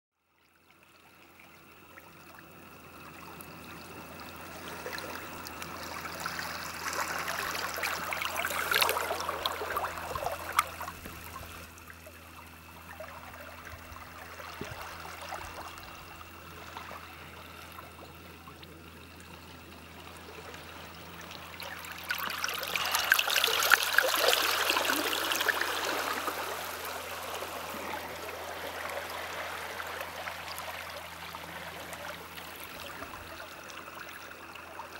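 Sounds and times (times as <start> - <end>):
faint low hum: 0.3 - 34.9
sea water lapping against rocks: 4.3 - 11.8, 20.9 - 34.9.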